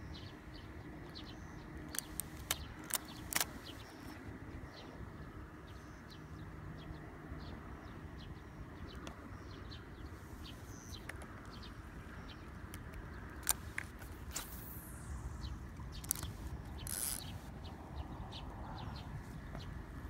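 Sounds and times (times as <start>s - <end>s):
small birds chirping: 0.0s - 20.0s
steady low rumble: 0.0s - 20.0s
sharp clicks: 1.8s - 4.2s, 12.7s - 15.1s, 15.7s - 17.4s.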